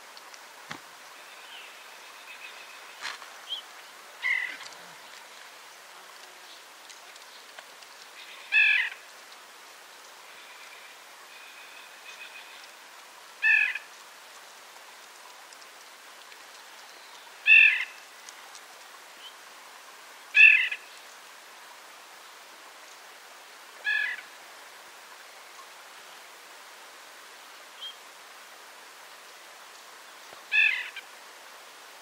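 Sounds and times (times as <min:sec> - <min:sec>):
faint steady hiss: 0:00.0 - 0:32.0
nuthatch nasal call: 0:04.2 - 0:04.8, 0:08.2 - 0:09.0, 0:13.4 - 0:13.9, 0:17.4 - 0:18.0, 0:20.3 - 0:20.8, 0:23.8 - 0:24.3, 0:30.5 - 0:31.1.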